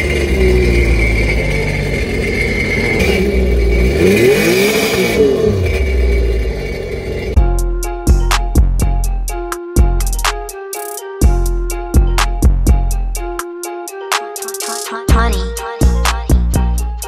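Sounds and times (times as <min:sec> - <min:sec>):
jet ski engine idling and revving: 0:00.0 - 0:07.4
music with drum hits: 0:07.4 - 0:13.5, 0:14.1 - 0:16.7.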